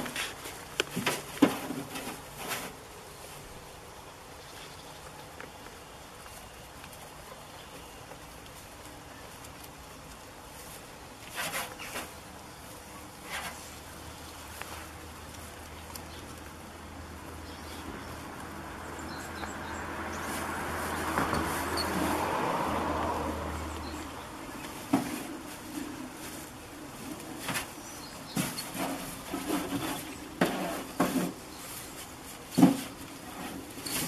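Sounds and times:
broad rush of noise: 0.0s - 34.0s
goats rustling hay: 0.0s - 34.0s.

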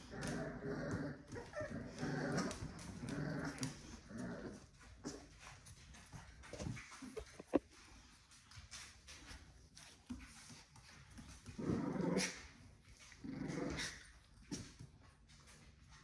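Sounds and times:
puppy growling: 0.0s - 7.6s, 11.2s - 15.9s.

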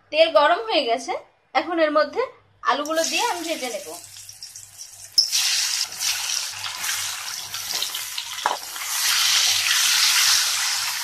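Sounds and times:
potatoes sizzling in hot oil: 2.9s - 11.0s.

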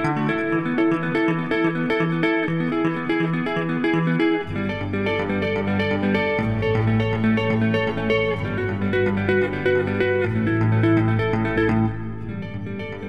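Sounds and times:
guitar picking notes: 0.0s - 13.0s
low bass notes: 4.4s - 13.0s.

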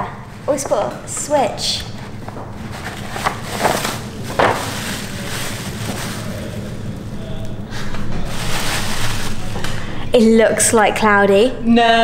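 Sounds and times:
low background hum: 0.0s - 12.0s
paper bag rustling and crinkling: 2.0s - 7.1s, 8.0s - 9.8s.

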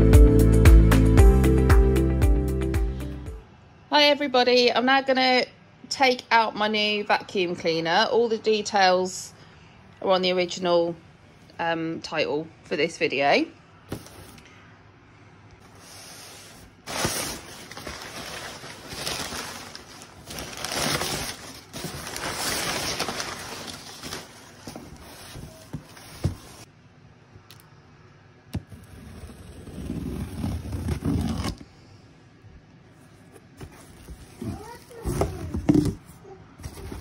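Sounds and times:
cardboard scraping: 13.9s - 14.4s, 15.7s - 26.7s, 28.6s - 31.6s, 33.0s - 37.0s.

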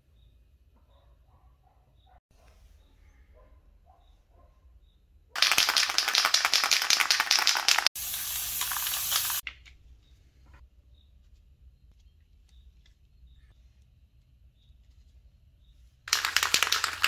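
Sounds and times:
spray paint hissing: 5.4s - 9.4s, 16.1s - 17.0s
spray can ball rattling: 5.4s - 9.7s, 16.1s - 17.0s.

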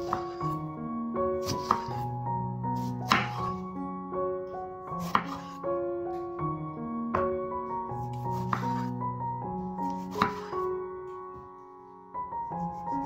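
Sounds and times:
knife slicing tomato on board: 0.0s - 0.5s, 1.4s - 2.0s, 2.8s - 3.6s, 5.0s - 5.6s, 8.0s - 9.0s, 9.8s - 10.7s
background music with held notes: 0.0s - 13.0s.

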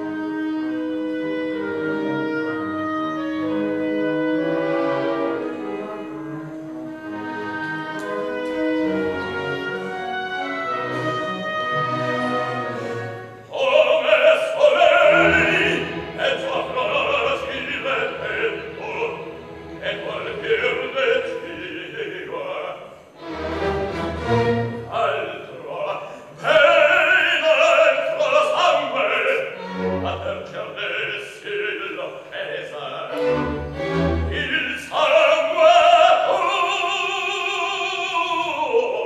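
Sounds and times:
baritone singing: 0.0s - 23.1s, 24.2s - 39.0s
orchestra playing: 0.0s - 39.0s.

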